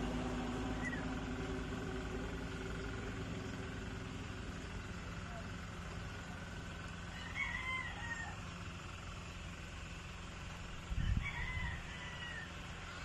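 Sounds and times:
rooster crowing: 0:07.1 - 0:08.6, 0:10.9 - 0:13.0.

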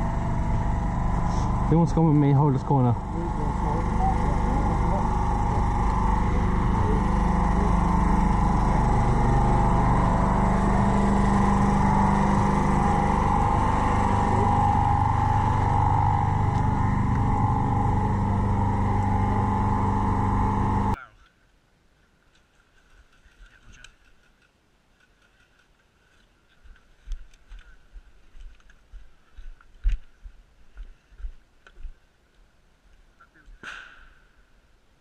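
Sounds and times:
motor hum: 0:00.0 - 0:21.0.

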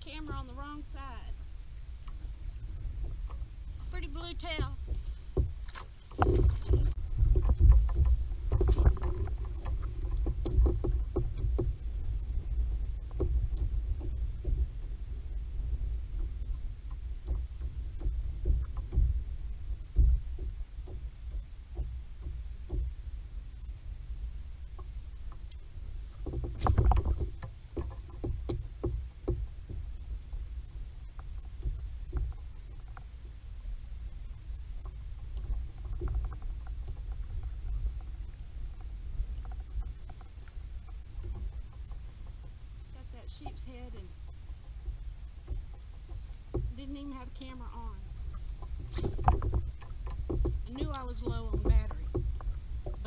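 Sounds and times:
wind and water against hull: 0:00.0 - 0:53.0
fishing tackle knocks and clicks: 0:04.8 - 0:14.7, 0:26.2 - 0:29.9, 0:48.3 - 0:53.0.

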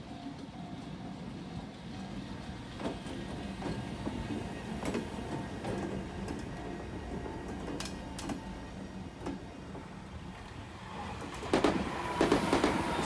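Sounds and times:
electric locomotive humming: 0:00.0 - 0:13.0
train clattering past: 0:00.0 - 0:13.0.

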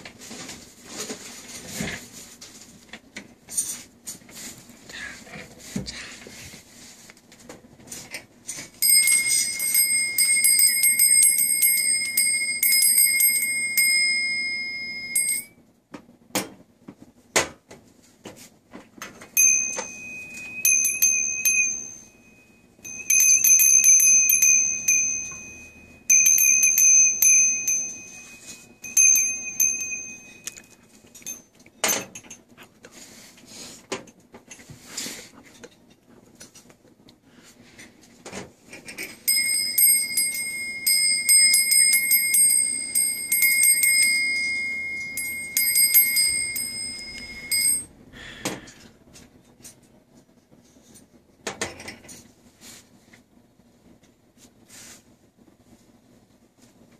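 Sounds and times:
knocks of bells handled: 0:08.5 - 0:15.5, 0:19.0 - 0:32.4, 0:38.8 - 0:47.9
door bell ringing: 0:08.8 - 0:15.6, 0:19.4 - 0:32.0, 0:39.0 - 0:48.0
higher-pitched bell ringing: 0:08.8 - 0:15.6, 0:19.4 - 0:31.5, 0:39.0 - 0:48.0.

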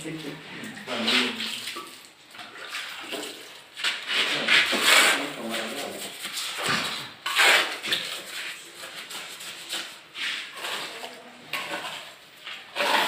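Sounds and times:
ceramic toilet scraping on concrete: 0:02.8 - 0:13.0.

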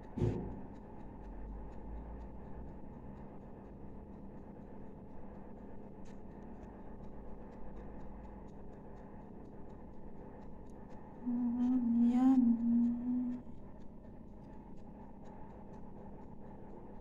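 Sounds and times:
faint even ticking: 0:00.0 - 0:17.0
low room hum: 0:00.0 - 0:17.0.

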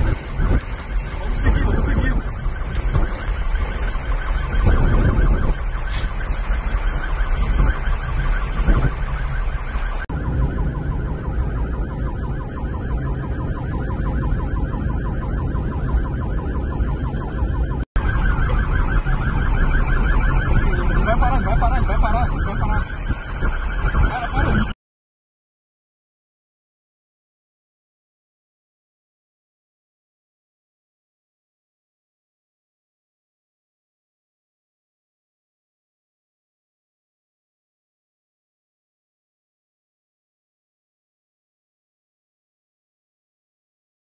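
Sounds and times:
car engine and road rumble: 0:00.0 - 0:24.7
police siren warbling: 0:00.0 - 0:24.8.

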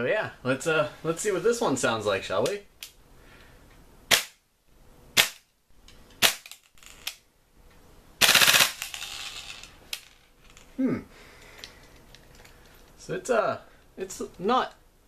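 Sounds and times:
airsoft gun shots: 0:04.1 - 0:04.4, 0:05.2 - 0:05.5, 0:06.2 - 0:06.6, 0:08.2 - 0:08.8
airsoft gun full-auto burst: 0:08.2 - 0:08.9.

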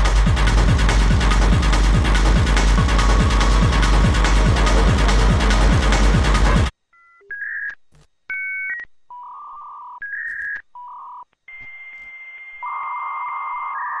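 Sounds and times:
steady high tone: 0:00.0 - 0:06.7.

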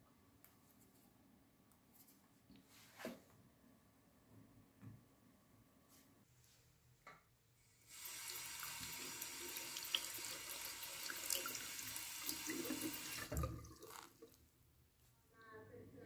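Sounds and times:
tap water running into strainer: 0:07.9 - 0:14.4.

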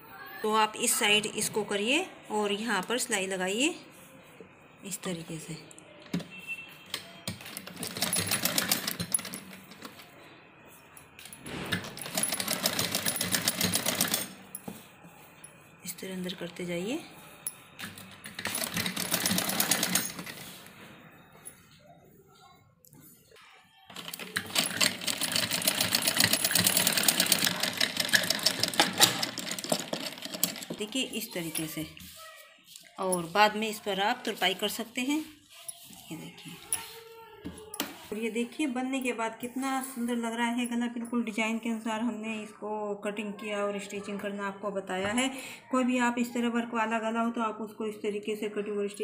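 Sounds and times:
sewing machine stitching: 0:06.9 - 0:10.1, 0:11.4 - 0:14.4, 0:17.8 - 0:20.6, 0:23.9 - 0:31.6.

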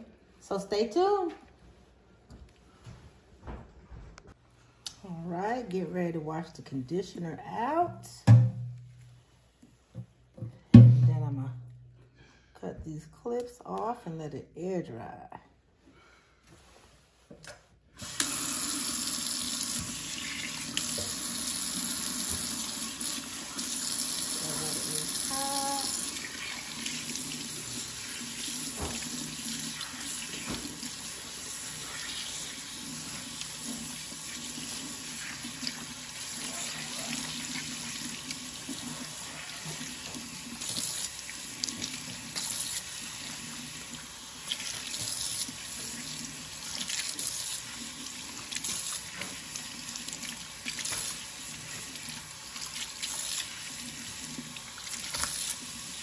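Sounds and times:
faucet running into steel sink: 0:18.0 - 0:56.0
water splashing on hair: 0:54.6 - 0:56.0.

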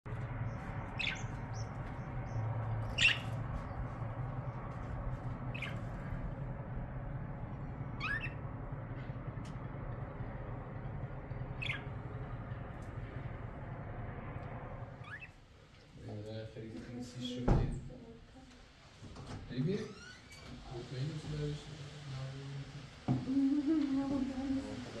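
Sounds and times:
low background hum: 0:00.1 - 0:25.0
bird giving sharp calls: 0:00.9 - 0:01.6, 0:02.8 - 0:03.4, 0:05.5 - 0:05.9, 0:08.0 - 0:08.4, 0:11.5 - 0:12.1, 0:15.0 - 0:15.4.

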